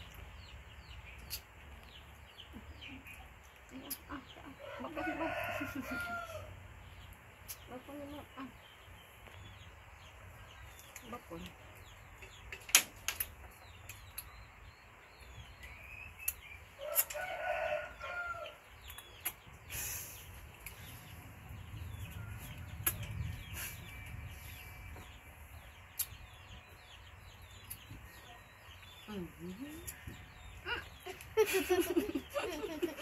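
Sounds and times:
rooster crowing: 4.6s - 6.5s, 16.8s - 18.6s.

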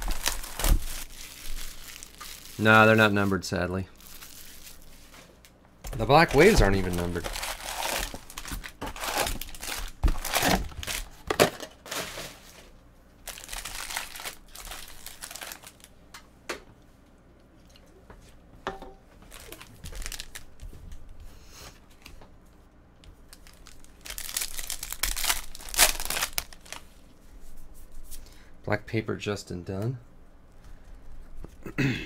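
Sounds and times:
foil pack tearing open: 0.0s - 3.2s, 6.0s - 12.5s, 13.2s - 15.9s, 19.3s - 20.4s, 23.3s - 26.8s
foil wrappers crinkling: 0.0s - 15.9s, 19.3s - 20.7s, 23.2s - 27.0s.

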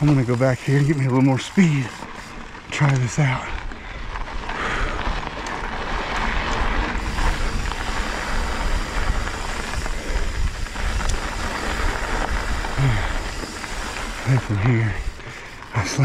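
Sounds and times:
bike tyres rolling on dirt: 0.0s - 16.0s
wind rushing over microphone: 4.8s - 15.2s.

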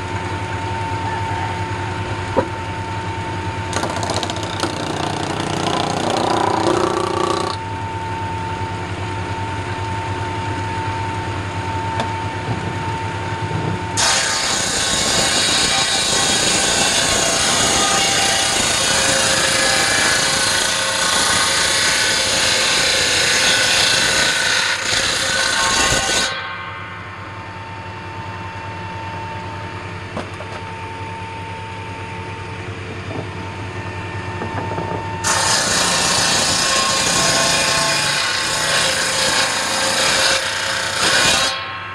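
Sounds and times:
table saw cutting log: 3.7s - 7.6s, 14.0s - 26.4s, 35.2s - 41.6s.

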